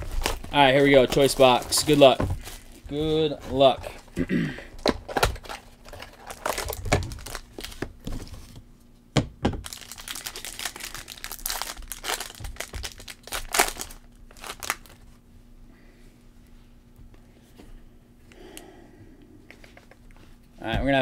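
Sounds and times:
card pack wrapper crinkling: 0.0s - 4.2s, 4.8s - 8.5s, 9.6s - 15.0s
card handling rustles: 0.0s - 8.7s.

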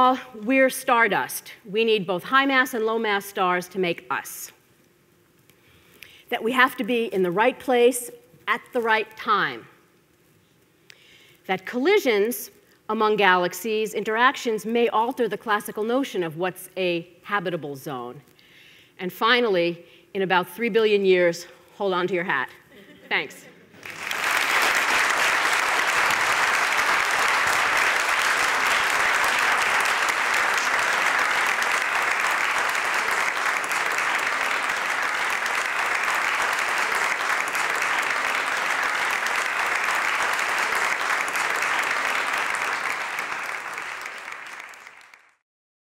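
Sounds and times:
audience clapping: 23.8s - 45.4s.

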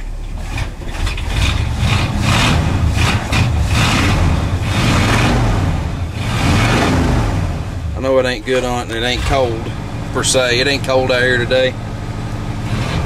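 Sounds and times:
truck engine rumbling: 0.0s - 13.0s.

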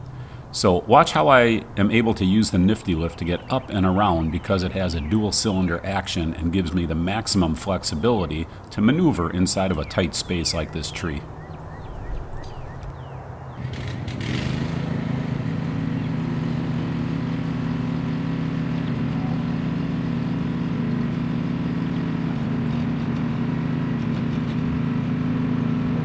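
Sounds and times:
boom lift engine running: 0.9s - 11.2s, 13.6s - 26.0s.

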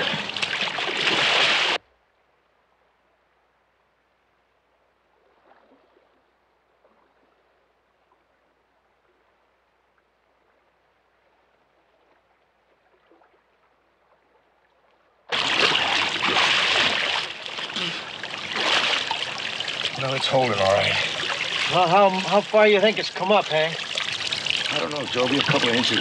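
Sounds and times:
rushing splashing river water: 0.0s - 1.8s, 15.3s - 26.0s
soft underwater gurgles: 4.5s - 26.0s.

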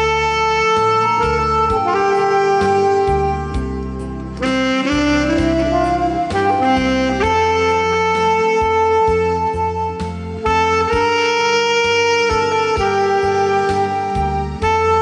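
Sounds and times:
alto saxophone melody: 0.0s - 15.0s
backing track with bass and beat: 0.0s - 15.0s.

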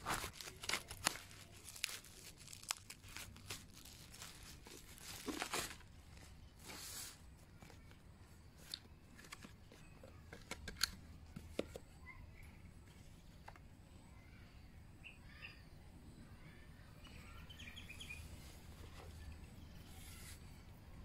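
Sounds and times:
scissors cutting bubble wrap: 0.0s - 5.8s
bubble wrap tearing: 0.0s - 7.2s
bubble wrap crinkling: 0.0s - 8.0s
packaging handling clicks and taps: 8.6s - 11.9s.

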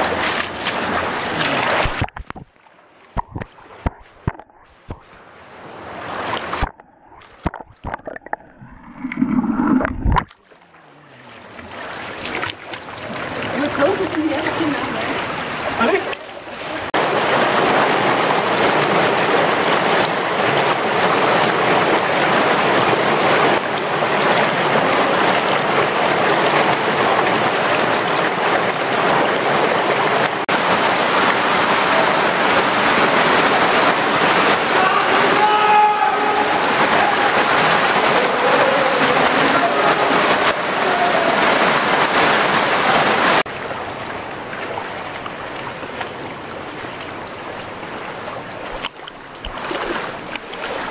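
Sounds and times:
whitewater rushing in a river: 11.1s - 50.9s.

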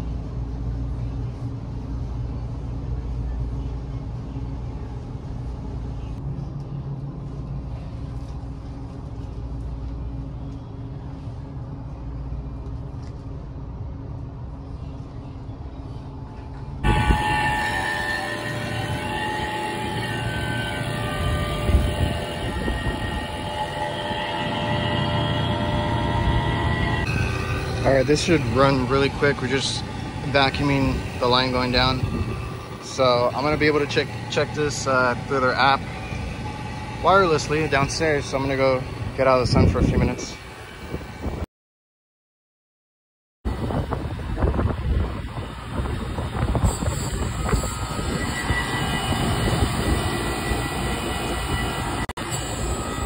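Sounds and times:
low hum: 0.0s - 39.8s.

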